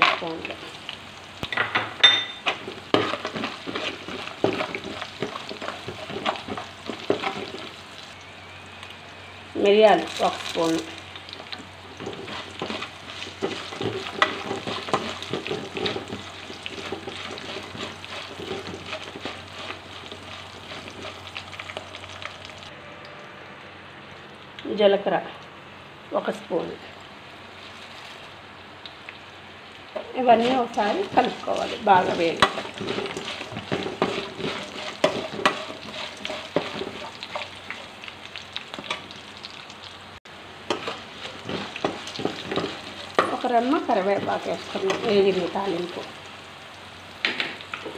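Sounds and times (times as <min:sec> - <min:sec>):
spices sizzling in hot ghee: 0:00.0 - 0:23.2, 0:26.1 - 0:47.9
metal spoon scraping pan: 0:12.0 - 0:21.2, 0:30.3 - 0:37.9, 0:40.7 - 0:45.6
spoon scraping metal pan: 0:30.3 - 0:37.9.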